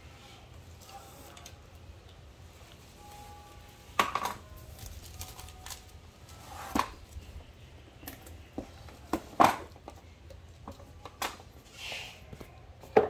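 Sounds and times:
plastic shrink wrap crinkling: 4.5s - 6.4s.

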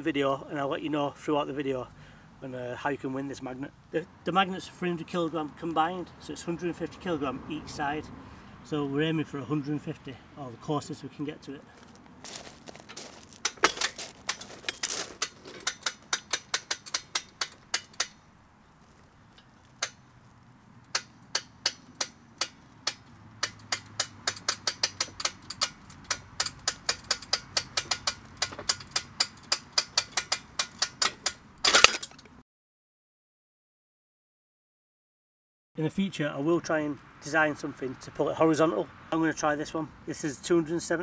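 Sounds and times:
magnet clattering free of steel: 12.8s - 18.2s, 20.9s - 32.3s.

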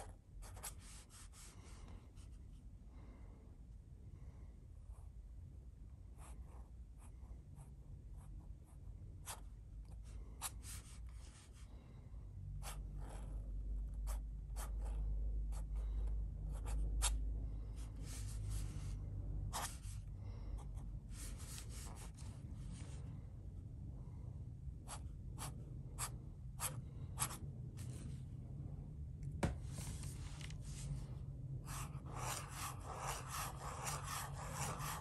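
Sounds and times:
low rumble: 14.8s - 35.0s
pen nib scratching paper: 31.7s - 35.0s.

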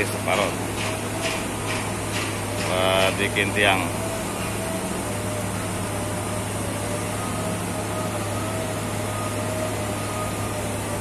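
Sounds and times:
construction machinery engine hum: 0.0s - 11.0s.

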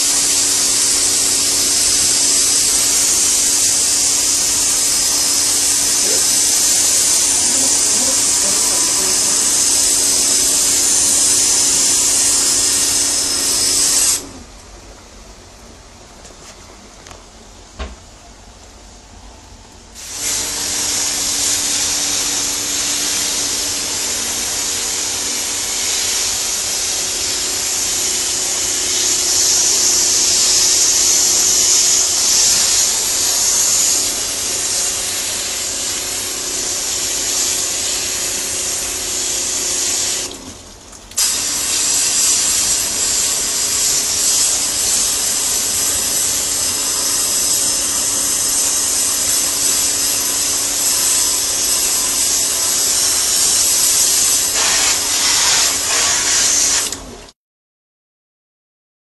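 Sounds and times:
pressure washer spray hissing: 0.0s - 14.4s, 20.0s - 57.2s
washer pump humming: 0.0s - 15.7s, 19.9s - 57.3s.

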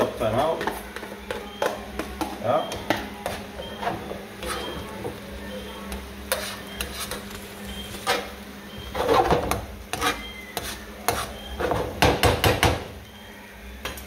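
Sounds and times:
spoon scraping frying pan: 0.4s - 5.2s, 5.9s - 12.0s.

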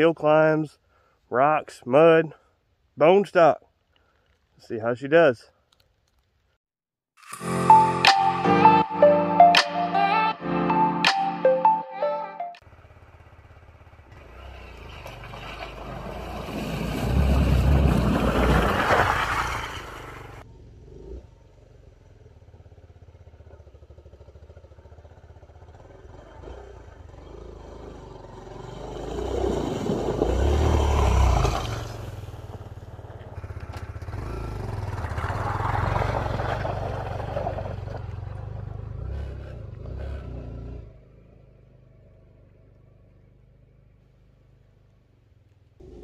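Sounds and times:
motorcycle engine revving: 12.6s - 46.0s.

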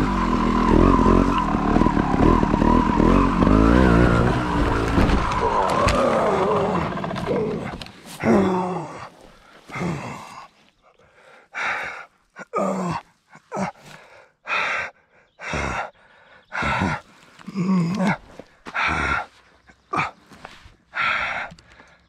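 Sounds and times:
man groaning: 3.0s - 10.6s, 11.6s - 14.1s, 15.4s - 15.9s, 16.6s - 19.3s
man breathing hard: 8.0s - 22.0s.

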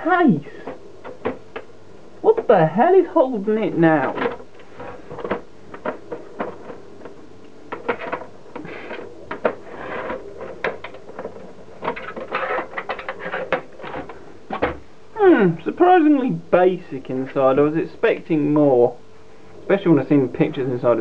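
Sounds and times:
metal and plastic scraping: 4.0s - 14.8s.

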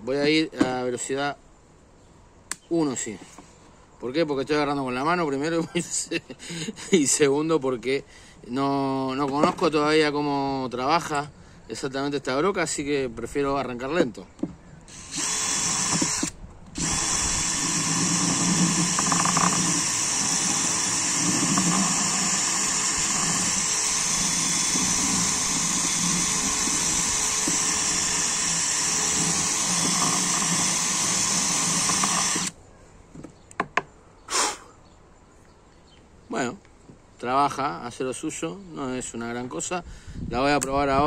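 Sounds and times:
drill grinding into wood: 14.9s - 32.6s.

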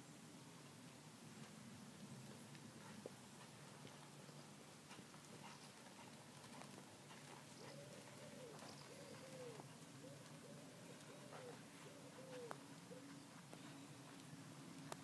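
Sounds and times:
horse hoofbeats trotting: 2.2s - 15.0s
pigeon cooing: 7.6s - 13.2s.

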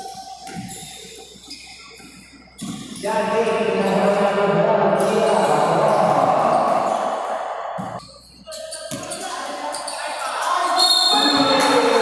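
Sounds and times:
basketball bouncing on court: 2.6s - 4.2s
players calling out: 3.0s - 8.0s.

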